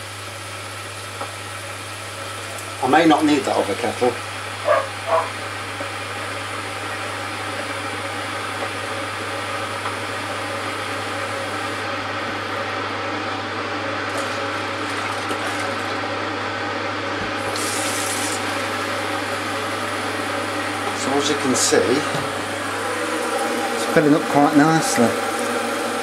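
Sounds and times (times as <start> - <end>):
water running into plastic bucket: 14.1 - 16.0, 17.3 - 18.7.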